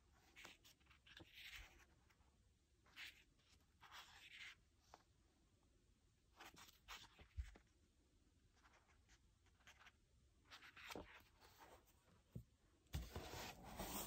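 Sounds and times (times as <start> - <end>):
book pages turning: 8.6 - 12.4, 13.0 - 14.0.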